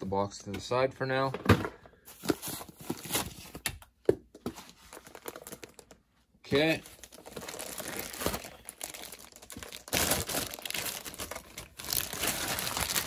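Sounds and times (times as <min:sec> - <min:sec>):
plastic bag crinkling: 0:04.9 - 0:13.0.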